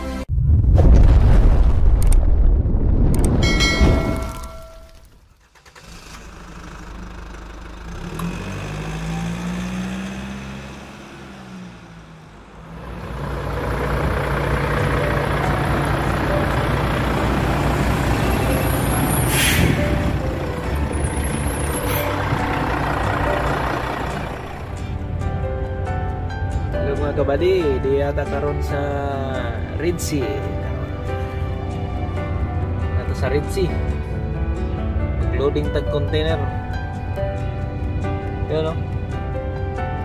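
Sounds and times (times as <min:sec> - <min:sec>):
truck diesel engine revving: 0:05.4 - 0:35.3
air brake hiss: 0:19.1 - 0:20.0.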